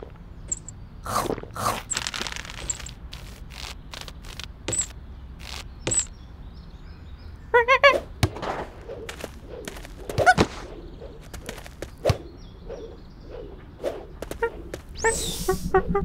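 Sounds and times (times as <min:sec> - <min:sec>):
high squeaky chirps: 0:00.5 - 0:06.2, 0:14.2 - 0:16.0.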